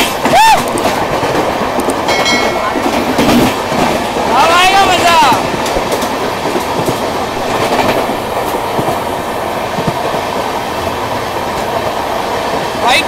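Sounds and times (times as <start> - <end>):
train rushing rail noise: 0.0 - 13.0
wheel clatter over rail joints: 0.0 - 13.0.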